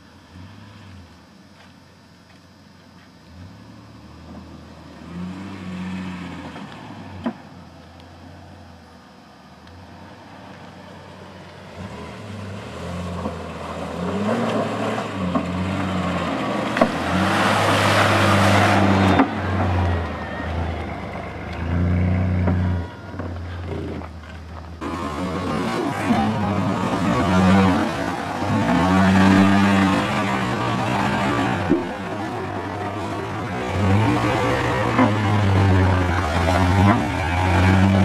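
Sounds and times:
car engine revving: 0:09.7 - 0:38.0.

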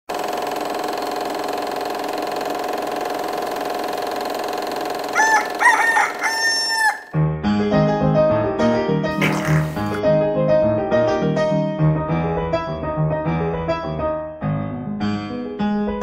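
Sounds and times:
rooster crowing: 0:05.1 - 0:07.2
piano music: 0:06.7 - 0:16.0.

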